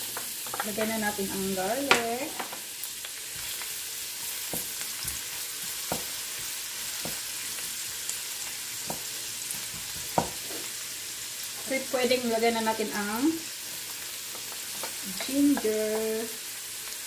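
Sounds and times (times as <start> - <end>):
garlic sizzling in hot oil: 0.0 - 17.0
spoon tapping a pan: 1.8 - 2.6, 14.3 - 16.2.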